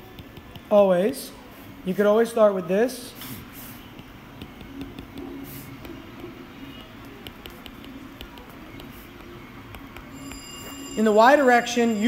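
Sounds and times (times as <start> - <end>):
stylus tapping on screen: 0.0 - 0.8, 3.9 - 10.5.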